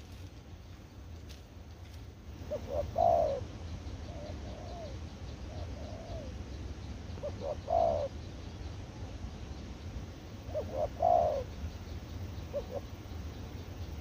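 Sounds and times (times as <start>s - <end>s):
dove cooing: 2.4s - 6.4s, 7.2s - 8.2s, 10.4s - 11.6s, 12.4s - 13.2s.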